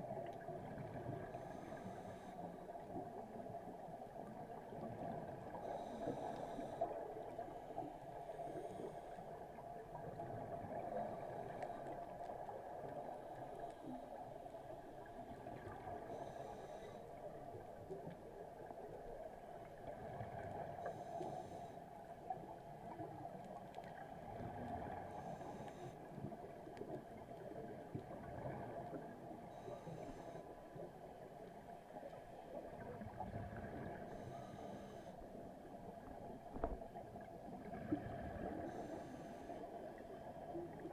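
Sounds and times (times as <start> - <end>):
exhaled bubbles underwater: 22.3 - 29.7, 32.0 - 34.6, 35.9 - 39.1.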